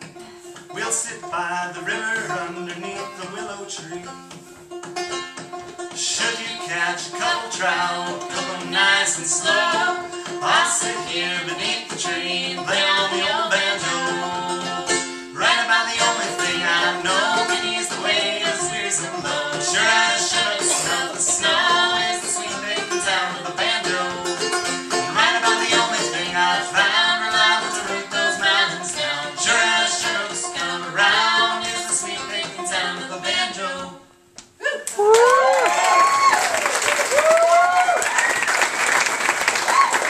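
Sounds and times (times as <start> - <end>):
banjo picking: 0.0 - 34.2
man and woman singing: 0.6 - 4.3, 5.9 - 34.2.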